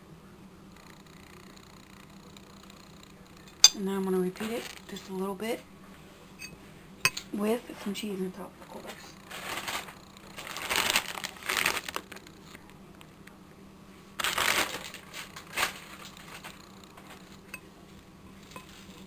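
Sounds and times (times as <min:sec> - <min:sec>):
plastic packaging crinkling: 0:04.4 - 0:05.0, 0:09.1 - 0:13.1, 0:14.2 - 0:17.5.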